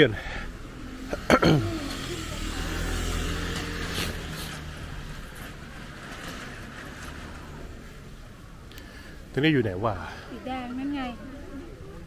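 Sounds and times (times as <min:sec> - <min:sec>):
motor scooter passing by: 0:00.6 - 0:06.0.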